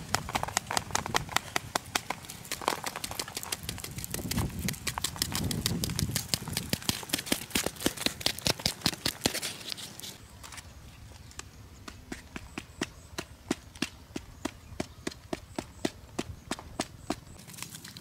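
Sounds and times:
papery comb crackling and snapping: 0.0 - 10.2
rustling: 0.0 - 11.2.

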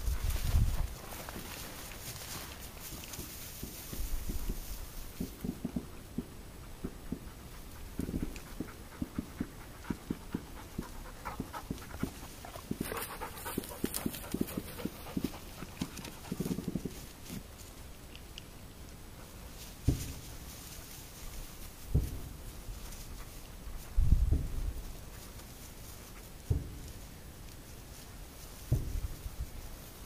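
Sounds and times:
footsteps through scrub: 0.0 - 4.3
brush rustling: 0.0 - 6.0, 6.6 - 30.0
dog panting: 6.6 - 16.9.

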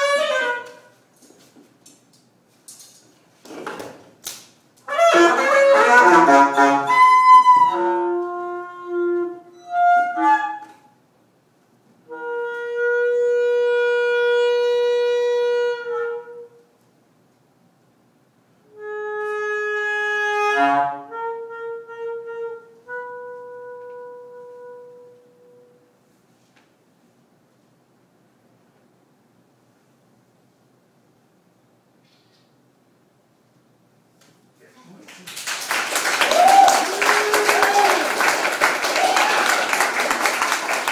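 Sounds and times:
saxophone improvising: 0.0 - 1.4, 4.8 - 10.9, 12.0 - 16.7, 18.7 - 26.0.

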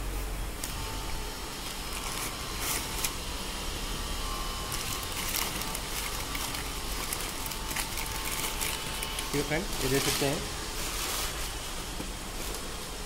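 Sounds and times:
low background hum: 0.0 - 13.0
plastic wrapping crinkling: 1.6 - 3.2, 4.6 - 11.7.

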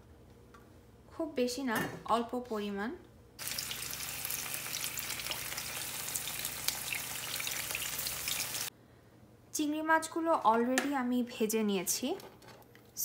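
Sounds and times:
shrimp sizzling in hot oil: 3.4 - 8.7.

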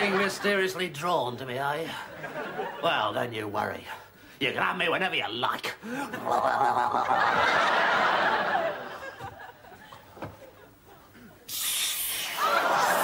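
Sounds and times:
audience laughing: 0.0 - 0.8, 2.1 - 3.0, 6.1 - 11.5, 12.4 - 13.0
hiss: 11.5 - 13.0.

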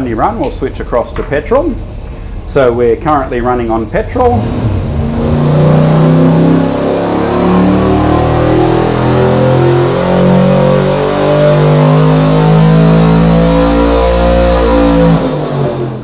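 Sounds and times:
engine running under load: 0.0 - 16.0.

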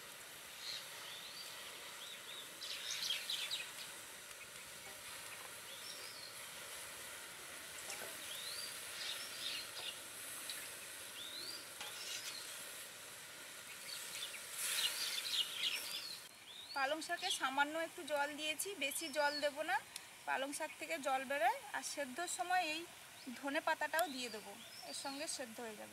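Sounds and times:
faint steady hiss: 0.0 - 25.9
birds chirping: 0.6 - 6.6, 7.8 - 12.6, 13.6 - 17.6.

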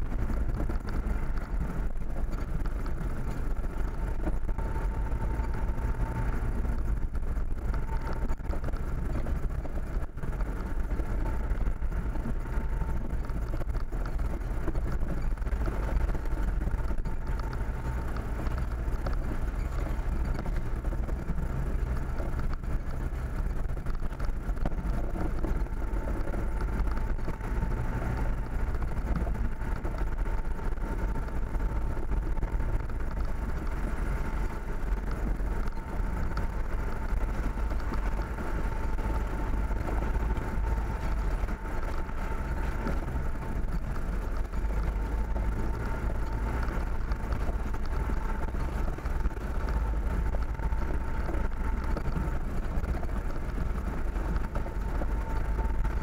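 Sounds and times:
faint steady whine: 0.0 - 56.0
vehicle engine and road rumble: 0.0 - 56.0.

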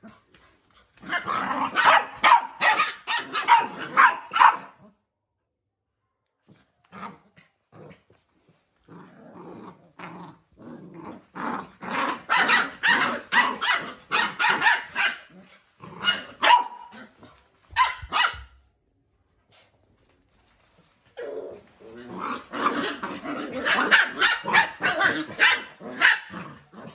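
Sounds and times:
puppies growling: 6.9 - 14.5, 21.1 - 26.9
puppies yapping and barking: 12.2 - 18.4, 23.6 - 26.3.

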